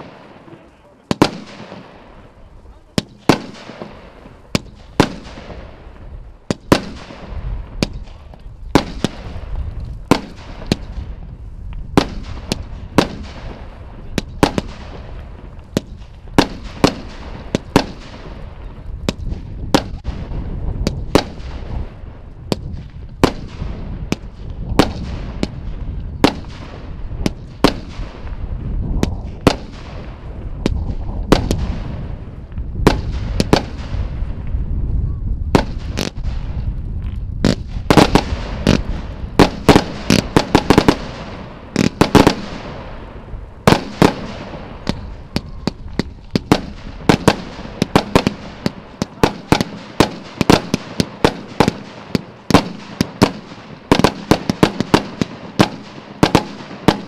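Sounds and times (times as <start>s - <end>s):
fireworks bangs with echo: 0.0s - 57.0s
low rumble: 18.4s - 40.4s.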